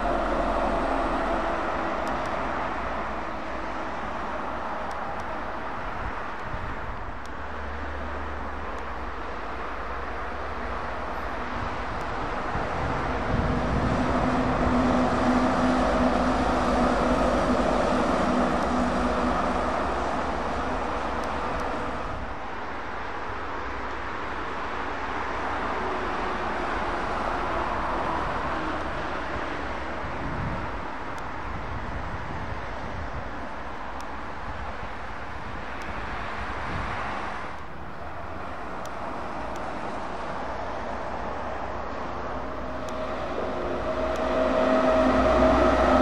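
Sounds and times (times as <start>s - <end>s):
trucks driving past: 0.0s - 46.0s.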